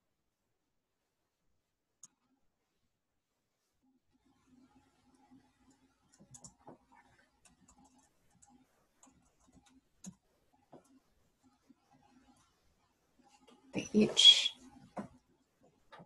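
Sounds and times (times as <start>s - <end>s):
computer keyboard clicks: 6.1s - 6.6s.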